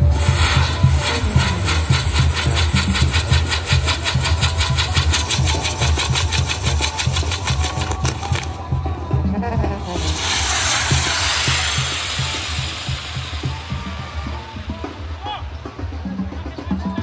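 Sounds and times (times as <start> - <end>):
fireworks spraying sparks hiss: 0.0 - 8.7, 9.6 - 15.2
low rumble: 9.3 - 15.6.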